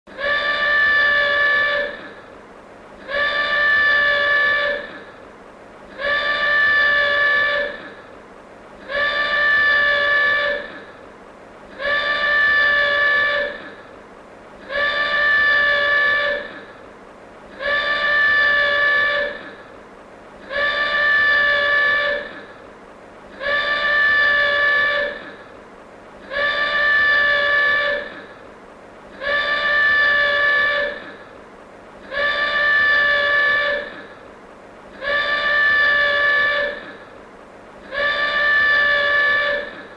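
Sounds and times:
klaxon alarm blasts: 0:08.9 - 0:10.8, 0:11.7 - 0:13.7, 0:17.5 - 0:19.6, 0:23.3 - 0:25.4, 0:26.2 - 0:28.3, 0:29.1 - 0:31.2, 0:32.0 - 0:34.1, 0:35.0 - 0:37.0, 0:37.8 - 0:39.9.

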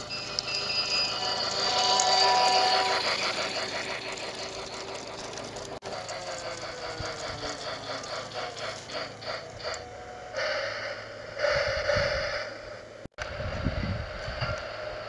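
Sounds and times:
toy train clicking on track: 0:00.0 - 0:09.9
toy motor whine: 0:00.0 - 0:10.6
hissing bursts: 0:05.8 - 0:13.6.

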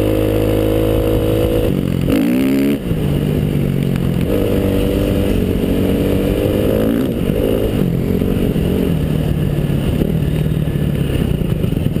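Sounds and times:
vehicle engine revving: 0:00.0 - 0:12.0.

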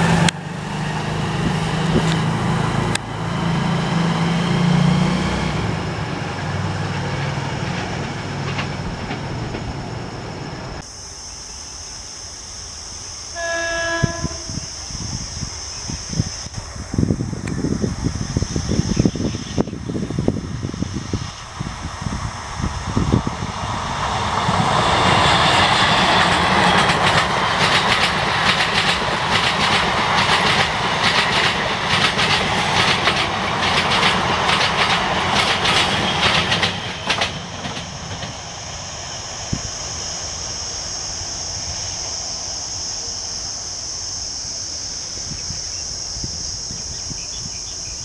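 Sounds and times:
high insect drone: 0:00.1 - 0:48.0
train wheels clattering on rails: 0:06.4 - 0:09.9, 0:24.2 - 0:38.5.

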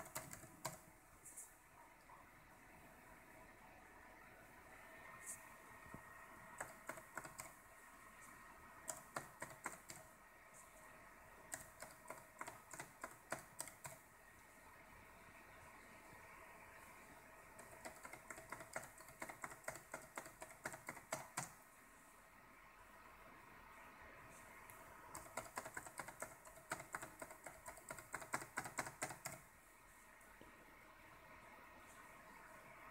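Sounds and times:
laptop keys tapping: 0:00.0 - 0:01.4, 0:05.2 - 0:10.8, 0:11.4 - 0:14.1, 0:17.4 - 0:21.6, 0:24.7 - 0:29.5
faint steady hum: 0:00.0 - 0:32.9.

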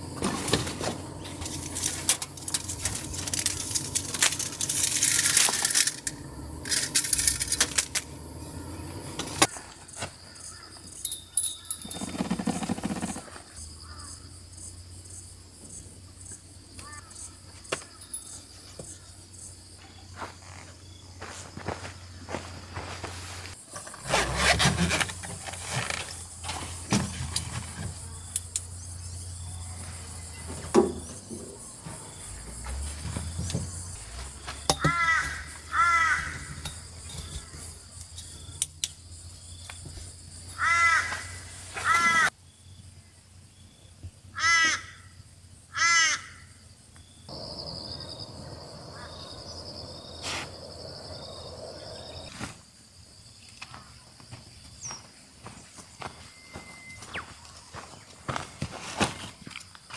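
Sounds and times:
crow cawing: 0:13.8 - 0:14.2, 0:16.8 - 0:17.2, 0:34.7 - 0:36.6, 0:40.6 - 0:42.3, 0:44.3 - 0:46.6.

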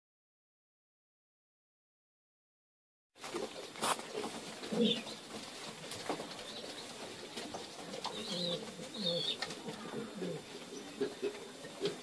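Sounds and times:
pigeon cooing: 0:03.4 - 0:05.2, 0:06.4 - 0:12.0.

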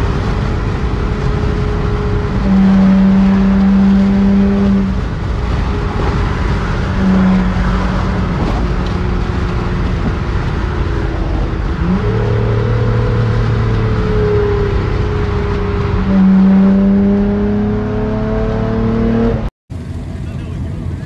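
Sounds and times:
car engine droning: 0:00.0 - 0:21.0
tyre and road noise: 0:00.0 - 0:21.0.

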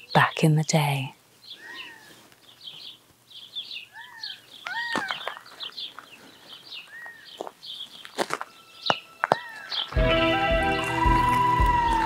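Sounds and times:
birds chirping: 0:00.0 - 0:12.0
whistled bird calls: 0:08.6 - 0:12.0.

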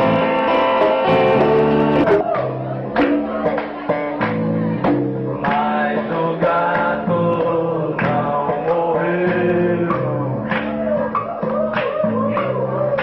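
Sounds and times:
live band music: 0:00.0 - 0:05.9
voices singing: 0:00.0 - 0:13.0.

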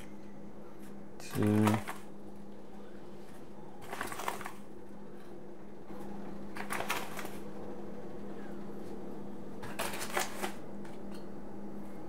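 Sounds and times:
steady low hum: 0:00.0 - 0:12.0
paper bag rustling: 0:03.8 - 0:04.6.

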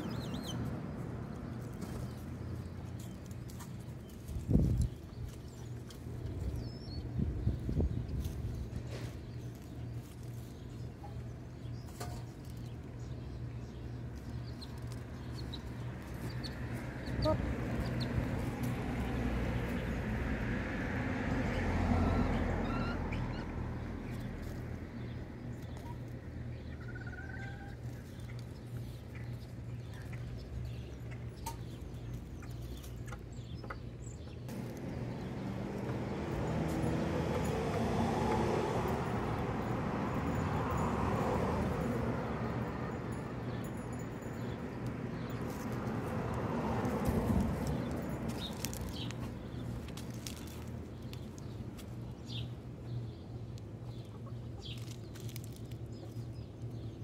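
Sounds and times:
scratches and pecks in dry litter: 0:08.0 - 0:12.8, 0:45.3 - 0:52.0.

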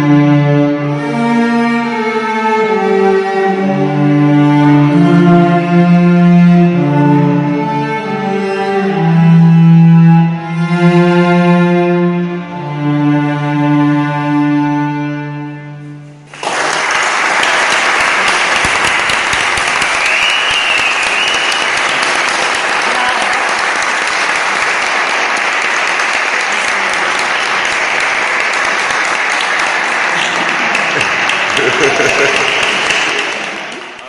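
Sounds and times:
audience applauding: 0:16.3 - 0:34.0.

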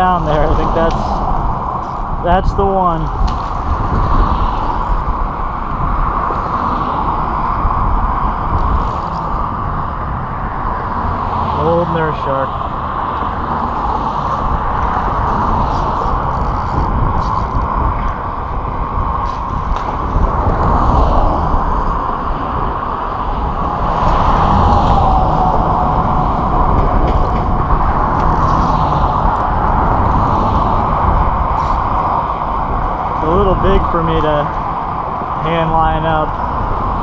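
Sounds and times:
road traffic passing: 0:00.0 - 0:37.0
wind buffeting microphone: 0:00.0 - 0:37.0.

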